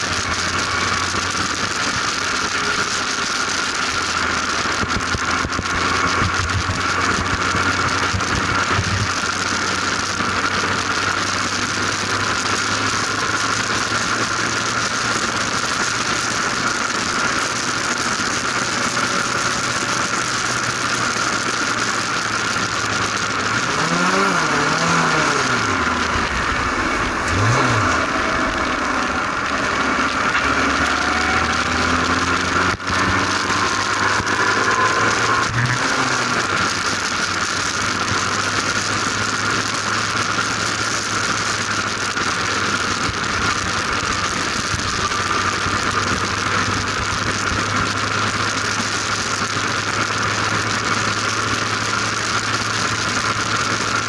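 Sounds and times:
race car engine at speed: 0.0s - 54.0s
wind rush: 25.0s - 36.7s.

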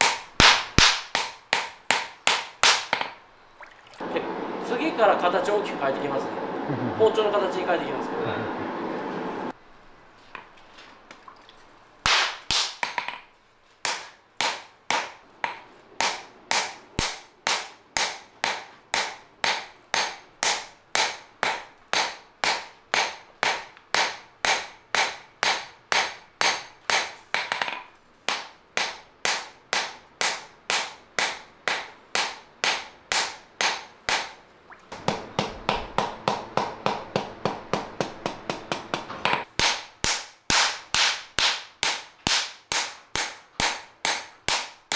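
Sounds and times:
hammer striking steel on anvil: 0.0s - 3.1s, 13.8s - 34.4s.

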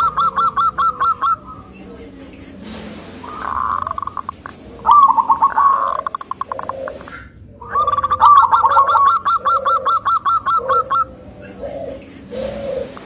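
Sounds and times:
dove cooing: 0.0s - 13.0s.

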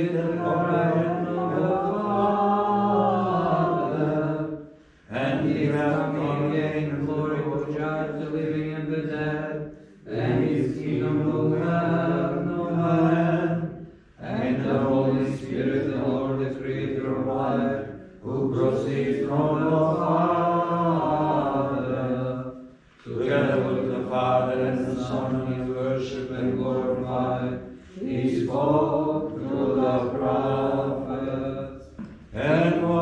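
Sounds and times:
liturgical chanting: 0.0s - 33.0s.

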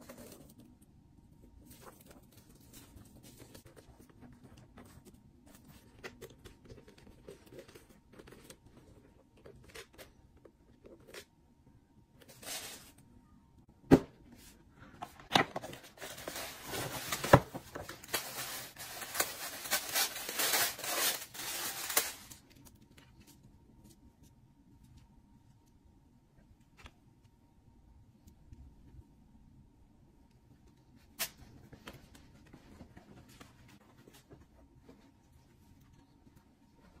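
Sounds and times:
tissue paper crinkling: 15.7s - 22.7s.

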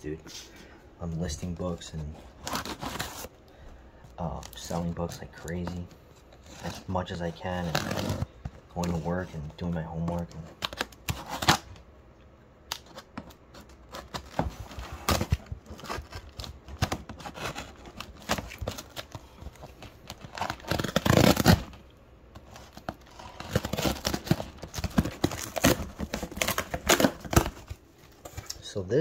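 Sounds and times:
cardboard tearing: 2.3s - 3.3s, 4.3s - 9.3s, 10.0s - 11.7s, 12.7s - 21.8s, 22.4s - 28.5s.

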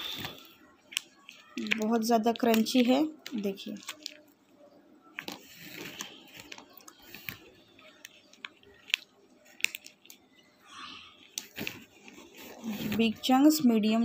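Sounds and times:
clay chunks clicking together: 0.1s - 4.3s, 5.1s - 10.2s.

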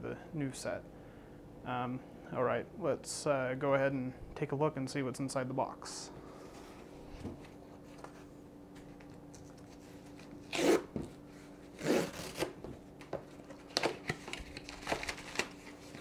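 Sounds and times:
cardboard box ripping: 11.8s - 12.6s
paper crackling and rustling: 13.3s - 16.0s.

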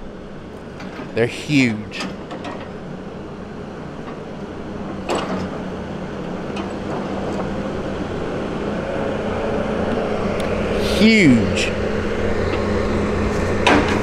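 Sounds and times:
diesel engine running: 5.6s - 13.7s.

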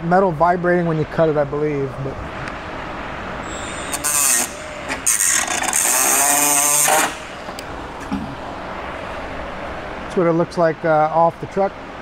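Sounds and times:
cutoff wheel cutting sheet metal: 3.4s - 7.6s.

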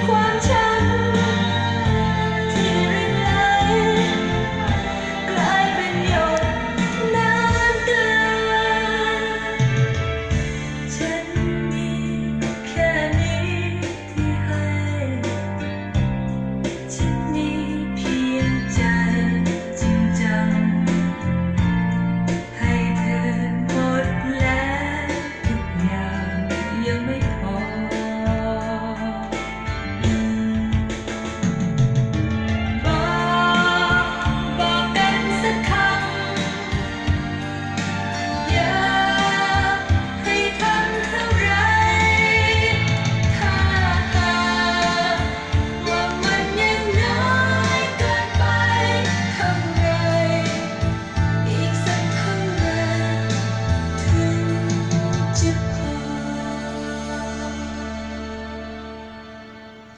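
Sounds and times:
person singing: 0.0s - 10.2s, 32.8s - 58.6s
guitar: 0.0s - 59.9s
song from vinyl record: 0.0s - 59.9s
sustained bass notes: 0.0s - 59.9s.

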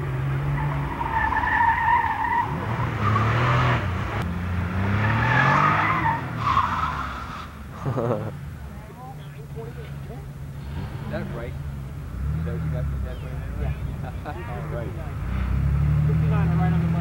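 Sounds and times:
car engine revving: 0.0s - 17.0s
tyres squealing: 0.4s - 3.8s.

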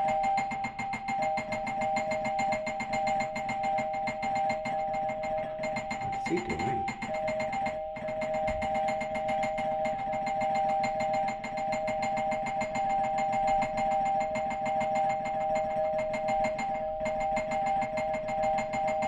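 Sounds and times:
two-tone doorbell ringing: 0.0s - 11.0s.

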